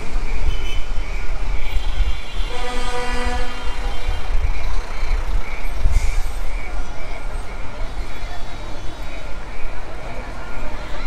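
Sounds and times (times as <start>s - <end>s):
city street rumble: 0.0s - 11.0s
horn-like tone: 2.5s - 4.0s.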